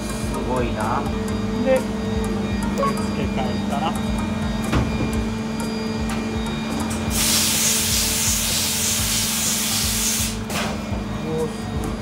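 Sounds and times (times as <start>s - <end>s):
steady machine hum: 0.0s - 12.0s
loud spraying hiss: 7.1s - 10.4s.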